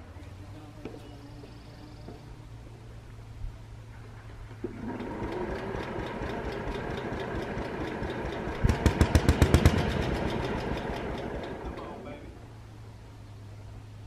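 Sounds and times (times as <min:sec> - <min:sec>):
garden tractor engine running: 0:03.8 - 0:14.0.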